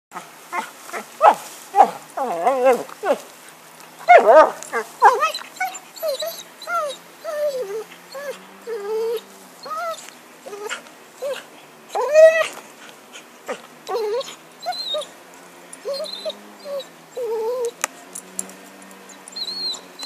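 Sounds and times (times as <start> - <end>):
dog whining and whimpering: 1.8 - 3.2, 4.0 - 12.6, 13.5 - 15.1, 15.8 - 17.8, 19.0 - 20.0.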